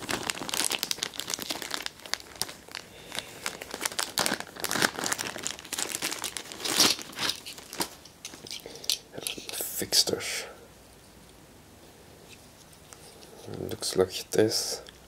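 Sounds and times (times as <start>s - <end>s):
plastic bag crinkling: 0.0s - 9.5s.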